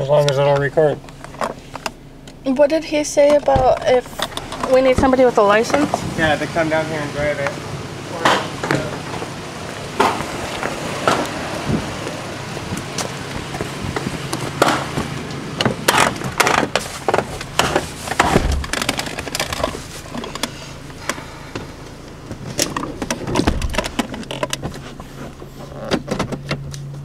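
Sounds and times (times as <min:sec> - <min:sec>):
heavy thuds: 0:08.2 - 0:25.5.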